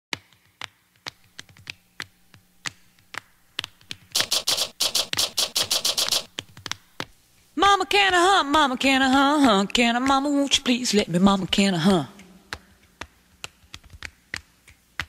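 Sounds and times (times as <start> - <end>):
sharp percussive clicks: 2.6 - 7.1
hissy percussive strokes: 4.1 - 6.4.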